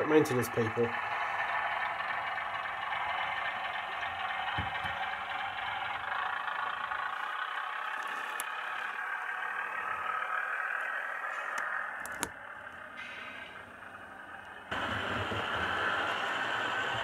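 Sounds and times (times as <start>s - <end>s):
diesel engine sound from small speaker: 0.0s - 17.0s.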